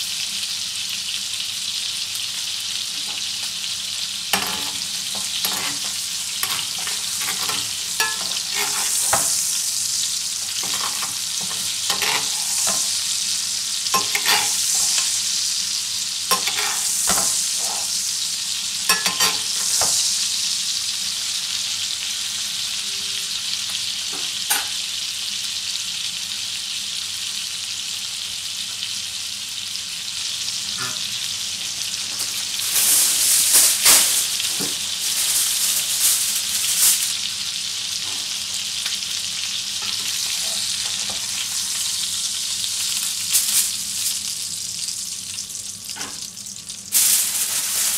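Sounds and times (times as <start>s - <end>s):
steak sizzling in frying pan: 0.0s - 47.9s
metal spoon clinking on pan: 4.4s - 9.2s, 10.6s - 12.8s, 14.0s - 14.6s, 16.3s - 17.2s, 18.9s - 19.6s.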